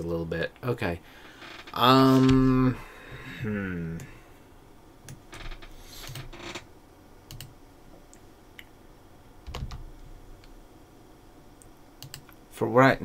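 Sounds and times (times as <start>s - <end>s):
keyboard keystrokes: 7.3s - 7.5s, 9.5s - 9.9s, 12.0s - 12.3s.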